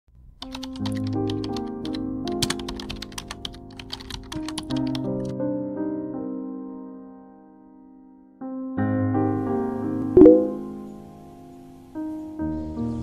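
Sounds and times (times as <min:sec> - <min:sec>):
keyboard typing clicks: 0:00.4 - 0:05.3
soft piano music: 0:00.4 - 0:13.0.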